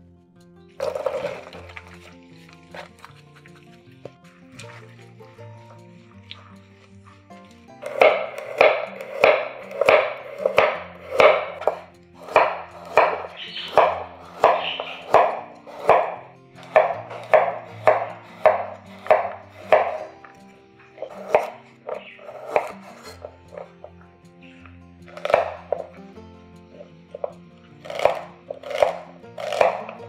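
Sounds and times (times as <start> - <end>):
soft background music: 0.0 - 30.0
knife chopping on cutting board: 7.8 - 20.1, 21.0 - 23.7, 25.1 - 25.9, 27.8 - 30.0.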